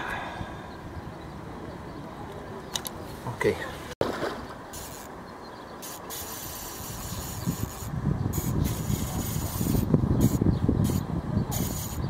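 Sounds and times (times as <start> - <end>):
wind buffeting microphone: 0.0 - 2.6, 6.3 - 12.0.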